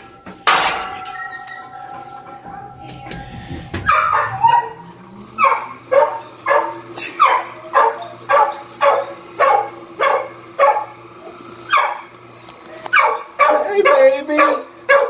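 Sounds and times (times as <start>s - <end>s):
dog barking excited yelps: 3.9s - 4.8s, 5.4s - 10.9s, 11.6s - 12.0s, 12.9s - 15.0s.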